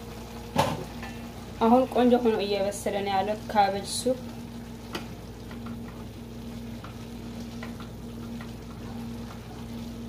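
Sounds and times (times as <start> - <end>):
steady low hum: 0.0 - 10.0
soup simmering: 4.2 - 10.0.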